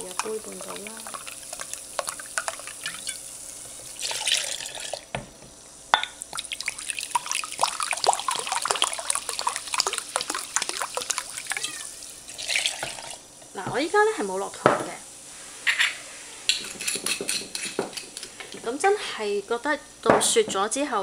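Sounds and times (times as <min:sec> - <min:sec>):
water pouring and splashing: 0:00.0 - 0:03.2, 0:03.8 - 0:05.1, 0:06.3 - 0:13.2.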